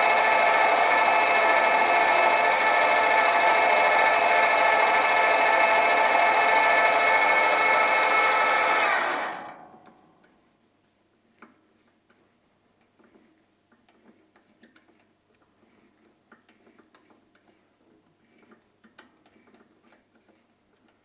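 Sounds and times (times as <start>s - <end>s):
drill bit cutting brass: 0.0s - 9.6s
lathe motor whine: 0.0s - 9.8s.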